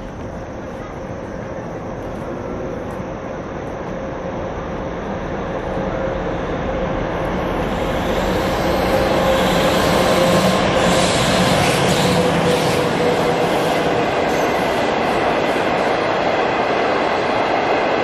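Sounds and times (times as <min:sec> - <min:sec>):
electric locomotive rumble: 0:00.0 - 0:18.0.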